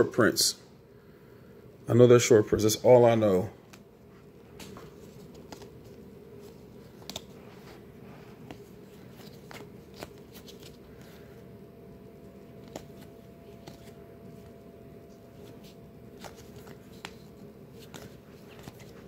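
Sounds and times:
low steady hum: 0.0 - 19.0
cards sliding and flicking: 4.5 - 11.4, 12.3 - 14.5, 15.1 - 19.0.

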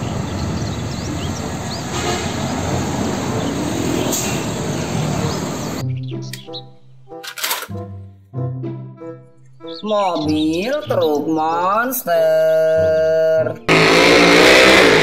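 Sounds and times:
passing cars and motorbikes: 0.0 - 5.8, 13.7 - 15.0
truck diesel engine rumble: 0.0 - 5.8.

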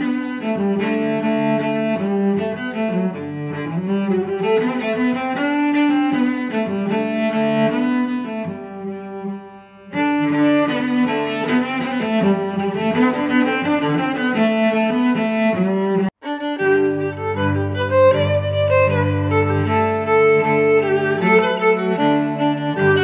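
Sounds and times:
instrumental background music: 0.0 - 23.0.

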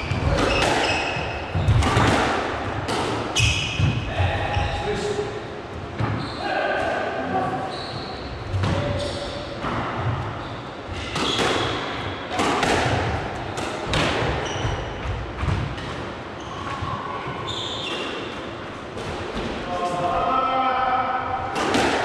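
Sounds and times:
squash ball struck by rackets: 0.1 - 4.0, 11.0 - 14.4, 21.5 - 22.0.

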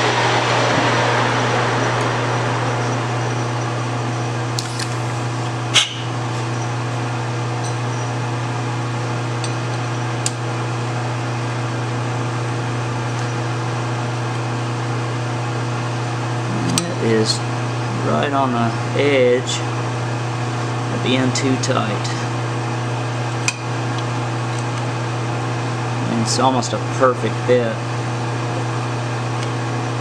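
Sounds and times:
lathe spindle whirr winding down: 0.0 - 5.6
steady low hum: 0.0 - 9.4
sharp metallic click: 4.6 - 5.2.

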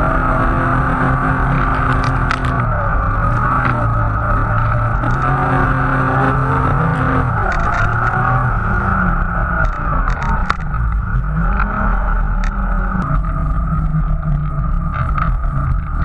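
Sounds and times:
snowmobile engine drone: 0.0 - 16.0
sharp clicks: 7.4 - 8.2, 9.6 - 11.0.

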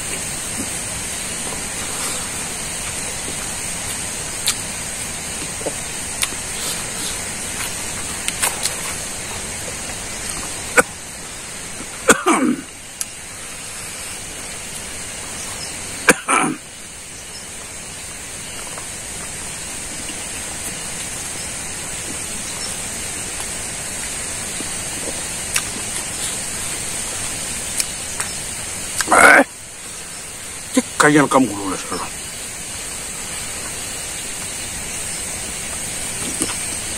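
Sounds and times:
steady background hiss: 0.0 - 36.9
man chewing and lip-smacking: 2.8 - 4.8, 5.4 - 9.5, 10.2 - 11.0, 23.0 - 29.1, 35.8 - 36.7
sharp mouth click: 4.4 - 4.6.

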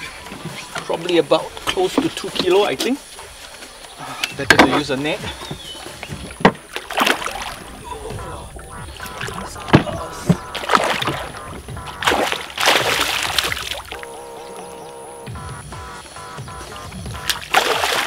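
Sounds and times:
fish splashing at surface: 6.6 - 7.8, 8.9 - 14.0, 17.2 - 18.0.

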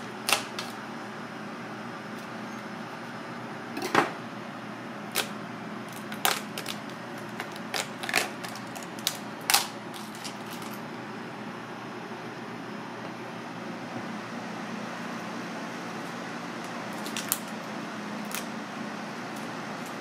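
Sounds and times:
steady background noise: 0.0 - 20.0
crab shell cracking: 5.1 - 10.8, 17.0 - 17.6.

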